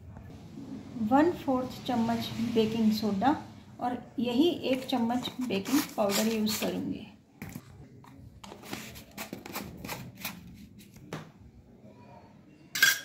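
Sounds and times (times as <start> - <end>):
mesh sieve scratching: 5.2 - 6.8, 8.5 - 11.0.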